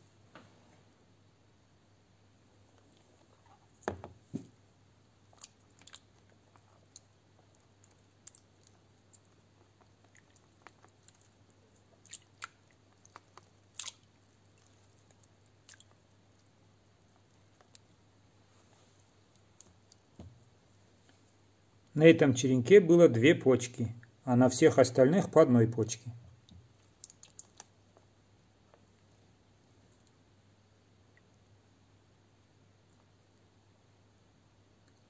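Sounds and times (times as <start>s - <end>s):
faint low hum: 0.0s - 35.0s
crackles of cuttings in wet soil: 7.8s - 16.0s, 26.9s - 27.7s.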